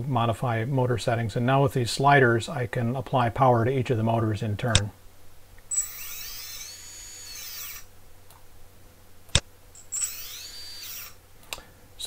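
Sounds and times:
drone motor whine: 5.7 - 7.9, 9.9 - 11.2.

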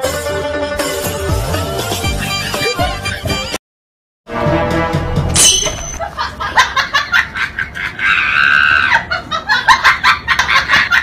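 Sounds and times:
high-pitched laughing or squealing: 5.4 - 11.0.

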